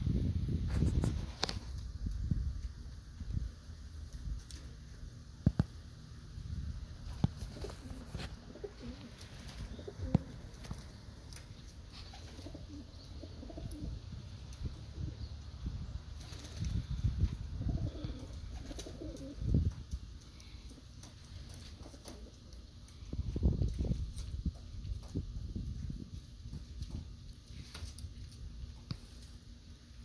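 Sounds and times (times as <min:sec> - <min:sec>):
pigeons cooing: 0:07.0 - 0:23.6
wings flapping: 0:07.1 - 0:14.0, 0:16.1 - 0:22.7.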